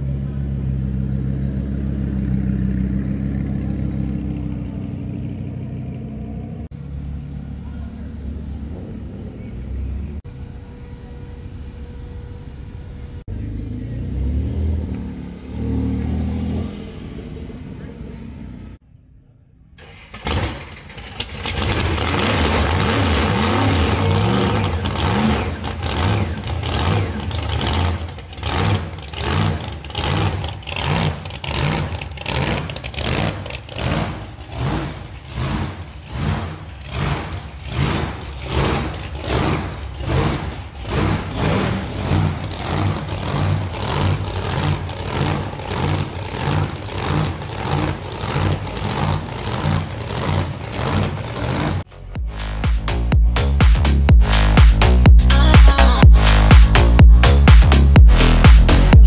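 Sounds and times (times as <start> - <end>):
drag car engine idling: 19.8 - 52.6.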